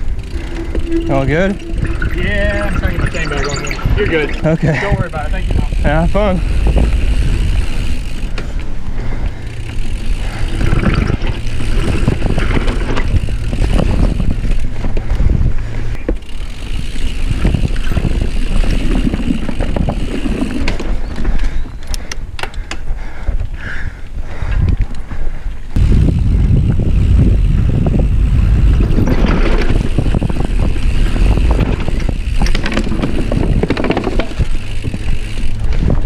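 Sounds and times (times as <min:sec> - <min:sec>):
bike rattling and clicking: 0:00.0 - 0:36.0
wind buffeting microphone: 0:00.0 - 0:36.0
tyres rumbling on dirt: 0:04.2 - 0:21.4, 0:28.0 - 0:36.0.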